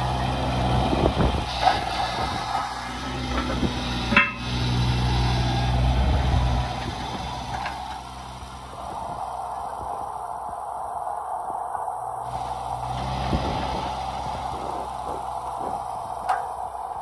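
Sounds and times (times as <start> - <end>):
diesel excavator engine under load: 0.0 - 17.0
sharp metallic clank: 4.1 - 4.6.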